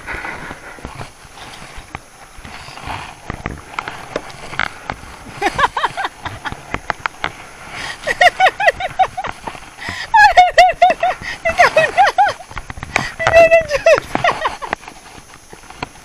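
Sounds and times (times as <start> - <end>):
high-pitched laughter: 7.8 - 14.7.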